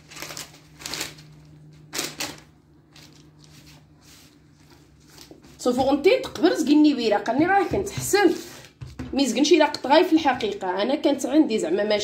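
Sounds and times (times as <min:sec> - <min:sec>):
baking paper rustling: 0:00.0 - 0:09.0.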